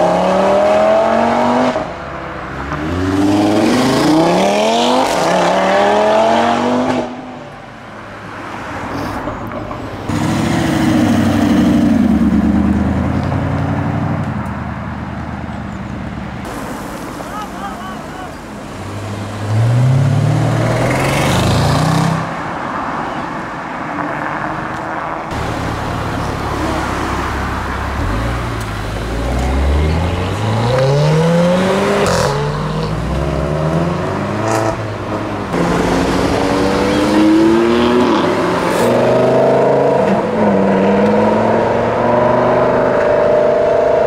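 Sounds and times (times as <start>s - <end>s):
car engines revving hard: 0.0s - 7.4s, 10.0s - 14.3s, 18.4s - 22.6s, 24.6s - 44.0s.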